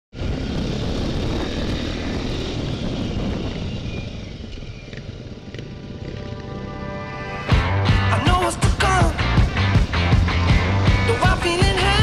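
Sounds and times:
wind rushing on microphone: 0.1s - 6.2s
motorcycle engine: 0.1s - 12.0s.

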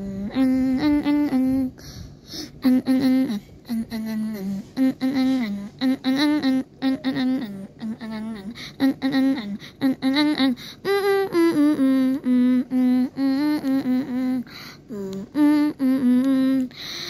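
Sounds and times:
person humming a tune: 0.0s - 17.0s.

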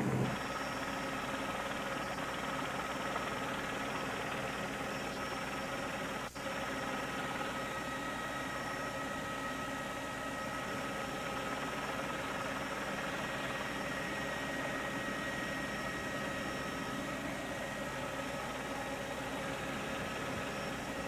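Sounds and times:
helicopter engine and rotor drone: 0.0s - 21.0s.

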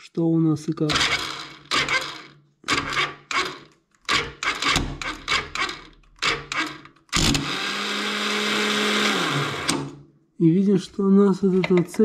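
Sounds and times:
electric starter cranking engine: 0.9s - 10.0s.

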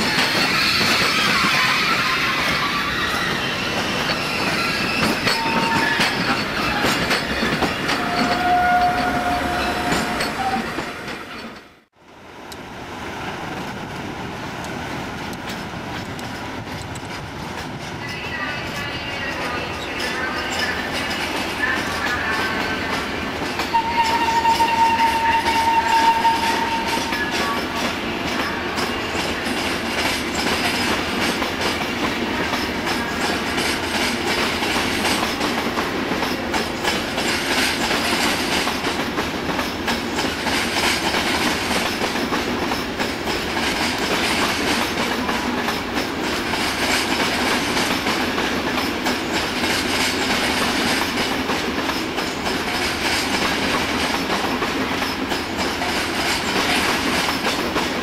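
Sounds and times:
train wheels clattering over rail joints: 3.7s - 9.0s.

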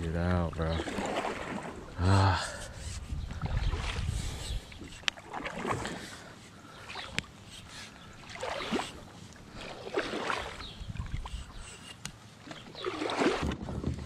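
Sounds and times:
paddle swishing through water: 0.6s - 14.0s.

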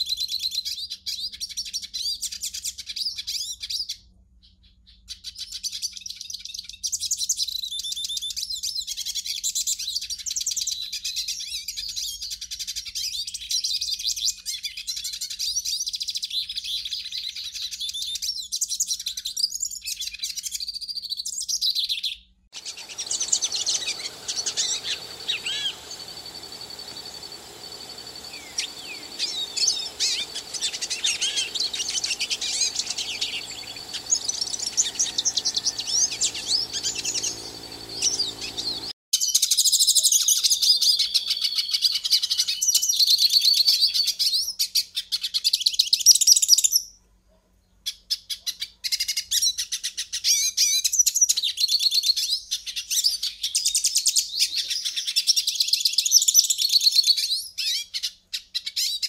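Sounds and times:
finch twittering and trilling: 22.6s - 38.9s
low background hum: 22.6s - 39.0s.

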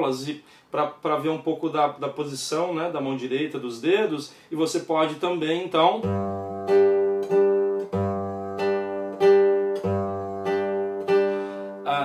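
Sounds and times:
classical guitar waltz strumming: 6.0s - 12.0s.

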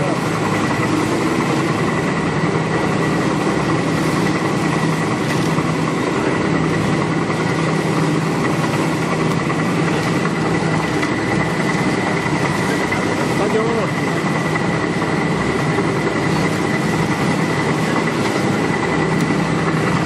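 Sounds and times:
cooking kettle agitator humming: 0.0s - 20.0s.

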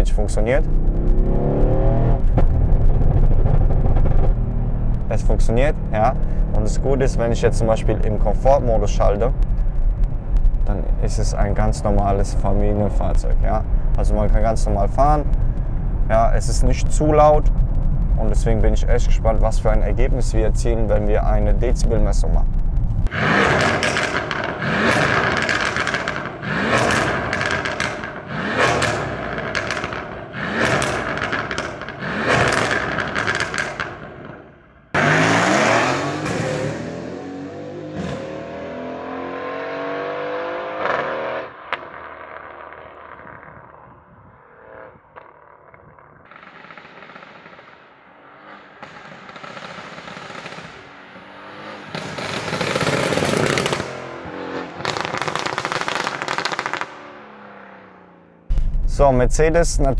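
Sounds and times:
car engine revving in blips: 0.0s - 10.7s, 22.4s - 43.7s, 44.7s - 59.0s
car accelerating through upshifts: 0.6s - 5.2s, 23.1s - 33.9s, 35.0s - 43.7s, 46.3s - 58.5s.

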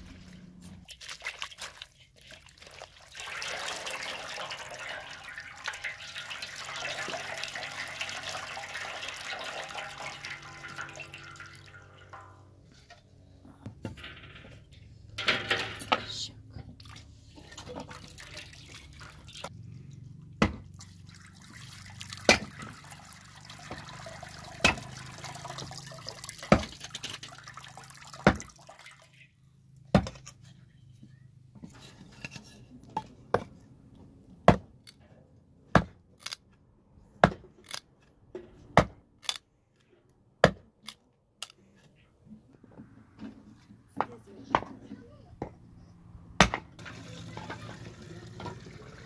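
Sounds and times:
water sloshing in metal basin: 0.0s - 13.2s, 15.2s - 19.5s, 20.6s - 29.3s, 46.8s - 49.0s
hatchet chopping firewood: 20.4s - 20.7s, 22.3s - 22.6s, 29.9s - 30.2s, 34.4s - 34.8s, 35.7s - 36.4s, 37.2s - 37.8s, 38.8s - 39.4s, 40.4s - 40.7s, 46.4s - 46.7s.

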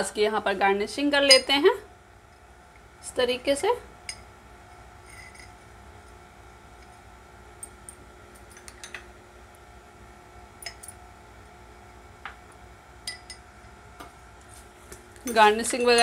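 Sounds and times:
low steady hum: 0.0s - 16.0s
spoon clicking on glass: 10.6s - 11.0s, 13.0s - 13.4s.

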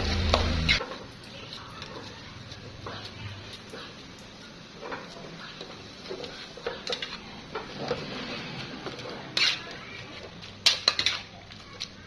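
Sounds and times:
metal spatula scraping a wok: 4.8s - 11.6s.

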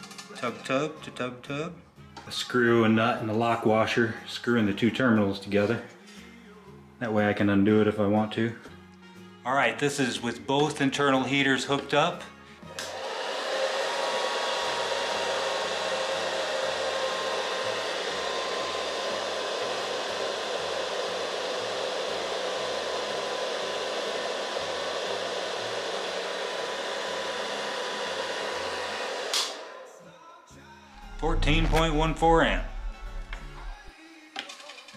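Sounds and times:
heater fan blowing air: 12.7s - 29.9s, 31.0s - 33.9s
faint whine: 31.0s - 33.9s.

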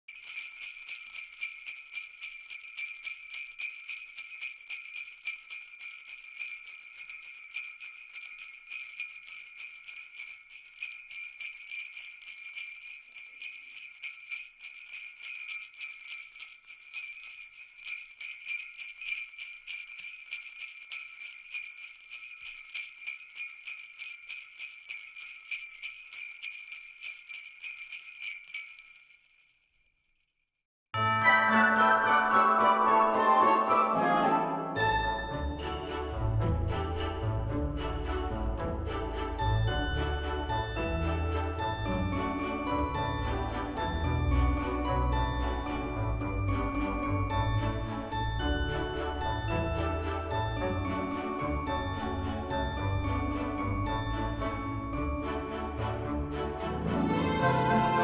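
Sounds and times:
sleigh bells jingling: 0.0s - 30.6s, 35.0s - 56.3s.

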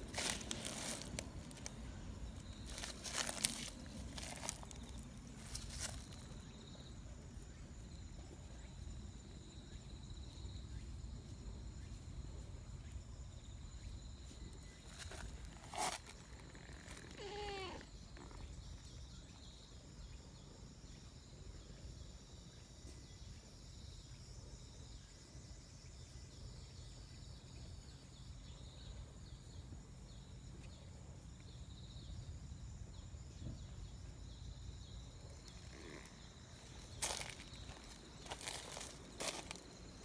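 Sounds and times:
cat meowing: 17.0s - 17.9s.

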